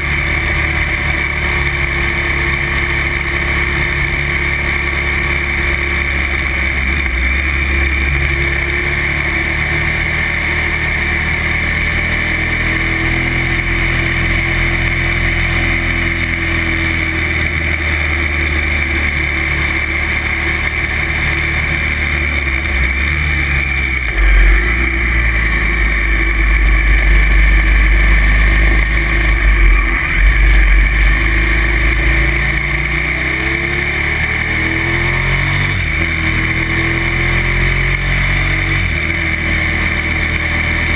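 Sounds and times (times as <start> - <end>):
motorcycle engine running: 0.0 - 40.9
deep rumble: 15.9 - 37.0.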